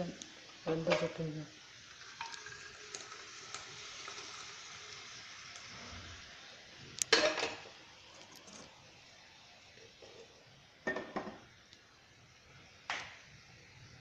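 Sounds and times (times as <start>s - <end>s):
metal cookware clanking: 7.1s - 7.7s.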